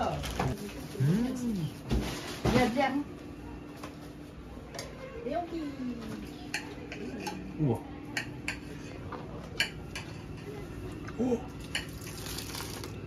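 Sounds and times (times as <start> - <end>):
cutlery and dishes clinking: 6.5 - 7.5.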